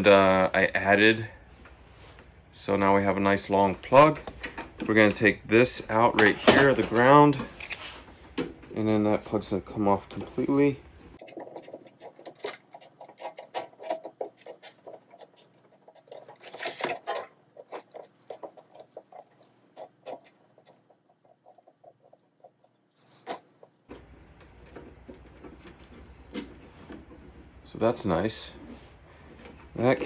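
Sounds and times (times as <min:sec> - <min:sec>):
small metal parts clicking and scraping: 0:11.2 - 0:23.8.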